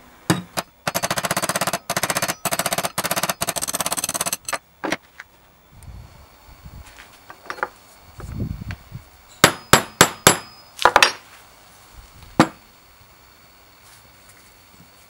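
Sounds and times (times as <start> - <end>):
hammer striking screwdriver: 0.3 - 4.6.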